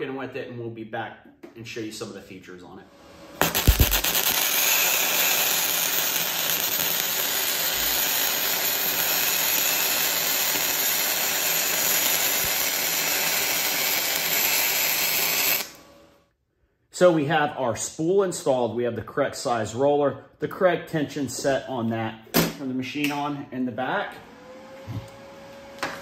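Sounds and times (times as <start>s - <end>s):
welding arc sizzling: 3.1s - 16.2s.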